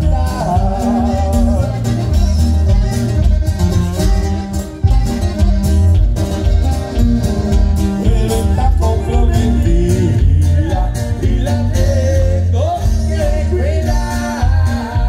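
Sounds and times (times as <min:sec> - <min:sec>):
person singing: 0:00.0 - 0:02.9, 0:08.0 - 0:15.0
plucked strings band music: 0:00.0 - 0:15.0
steady bass line: 0:00.0 - 0:15.0.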